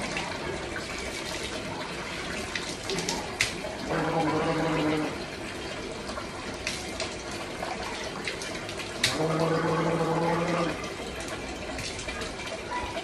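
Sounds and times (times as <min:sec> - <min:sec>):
water splashing: 0:00.0 - 0:13.0
man gargling water: 0:02.8 - 0:05.4, 0:09.0 - 0:11.0.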